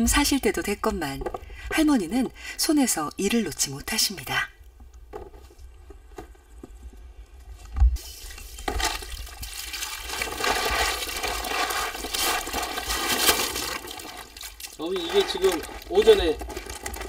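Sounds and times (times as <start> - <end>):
water running: 8.2 - 16.4.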